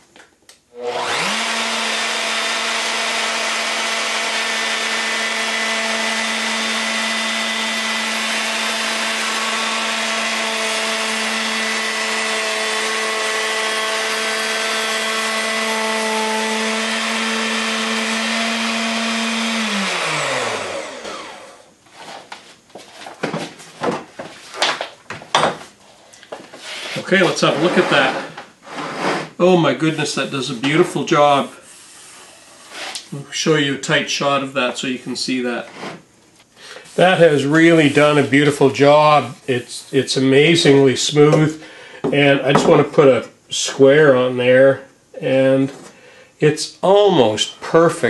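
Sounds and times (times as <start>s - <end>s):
electric router running: 0.8s - 21.7s
router winding down: 0.8s - 21.7s.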